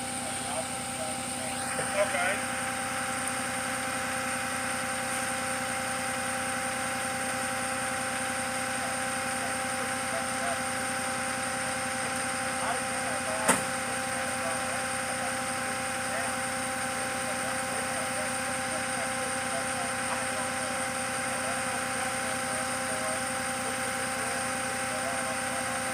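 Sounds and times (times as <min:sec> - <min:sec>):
faint voices: 0:00.0 - 0:02.5, 0:08.4 - 0:25.9
truck engine idling: 0:00.0 - 0:25.9.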